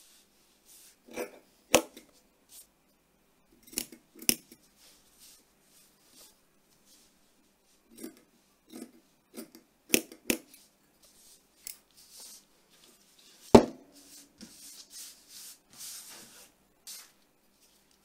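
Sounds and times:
knock on a table: 0:13.6 - 0:13.8.

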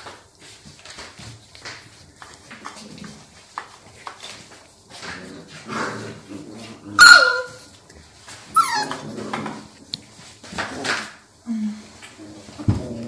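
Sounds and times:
dogs scuffling: 0:00.0 - 0:13.0
dog barking: 0:07.0 - 0:07.6
dog yipping: 0:07.0 - 0:07.7, 0:08.5 - 0:09.0.

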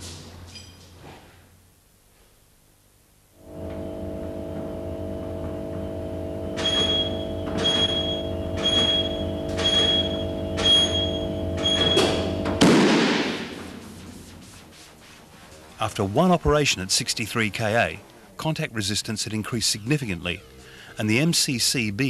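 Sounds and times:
electrical mains hum: 0:00.0 - 0:22.0
short high beeps: 0:06.6 - 0:12.4
circuit breaker bang: 0:06.6 - 0:13.6.

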